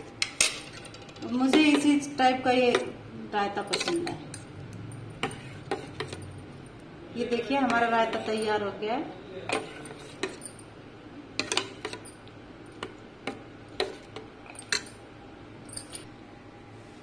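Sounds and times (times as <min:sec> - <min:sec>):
spoon clinking in metal bowl: 0:03.6 - 0:06.3, 0:07.7 - 0:08.6, 0:09.5 - 0:10.7, 0:13.8 - 0:15.0, 0:15.7 - 0:16.1.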